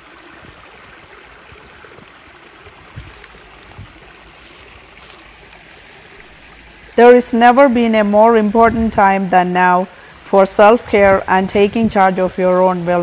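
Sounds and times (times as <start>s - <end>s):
stream water rushing: 0.0s - 13.0s
soft low bumps: 1.3s - 7.0s, 7.8s - 9.2s.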